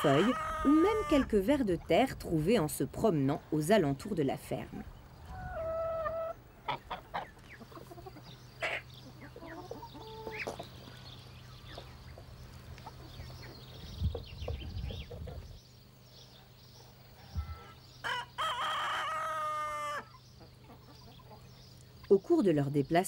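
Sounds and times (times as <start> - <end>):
hens clucking: 0.0 - 2.0, 4.6 - 15.6, 17.4 - 21.6.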